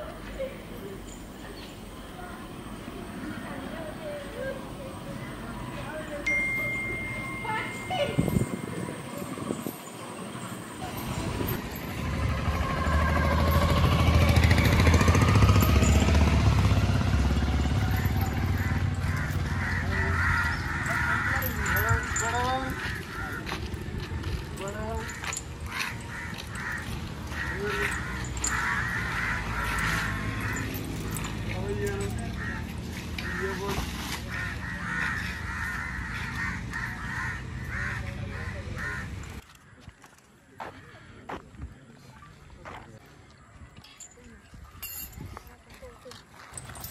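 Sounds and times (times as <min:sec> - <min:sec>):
vehicle engine passing: 0:08.5 - 0:39.4
crows cawing: 0:18.0 - 0:24.2, 0:24.8 - 0:41.3.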